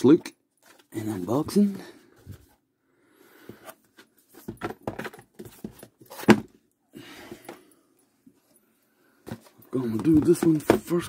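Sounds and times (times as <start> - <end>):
cardboard box taps and rustles: 9.3 - 11.0.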